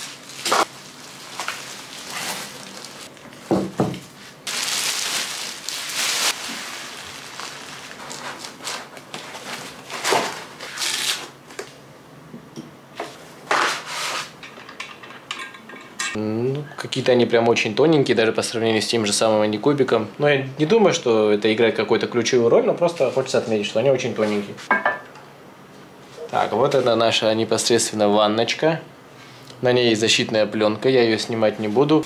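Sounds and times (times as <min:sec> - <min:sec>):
packing material rustling: 0:00.0 - 0:11.3.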